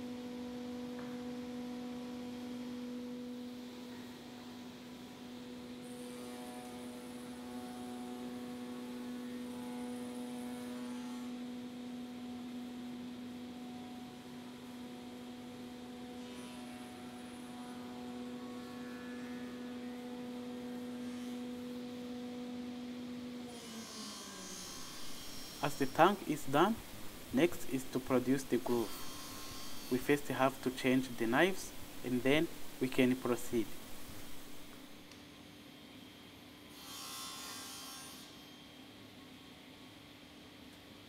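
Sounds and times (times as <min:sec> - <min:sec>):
machine cutting wood: 0:28.3 - 0:30.5.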